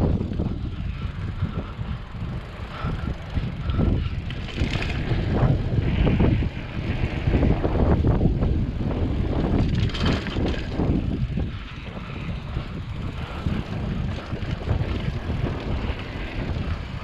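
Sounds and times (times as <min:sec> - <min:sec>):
bike rattling and knocking: 0:00.0 - 0:17.0
bike tyres rolling on dirt: 0:00.0 - 0:17.0.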